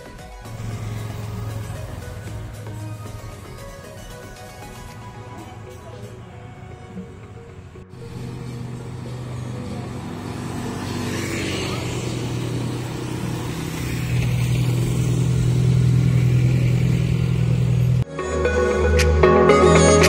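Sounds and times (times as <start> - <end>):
low engine hum: 0.0 - 18.1
car driving past: 0.4 - 18.0
motorcycles driving past: 0.4 - 18.0.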